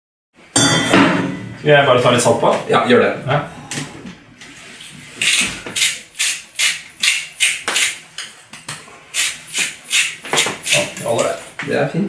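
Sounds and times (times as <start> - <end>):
salt mill grinding: 5.2 - 8.0, 9.1 - 11.0.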